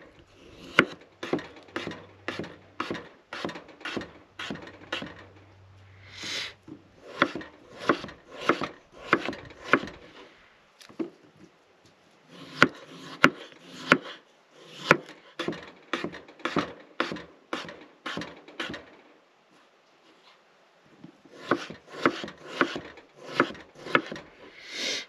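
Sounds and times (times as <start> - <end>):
knife slicing potato on cutting board: 0.4 - 5.2, 7.0 - 10.3, 12.3 - 18.8, 21.3 - 24.2.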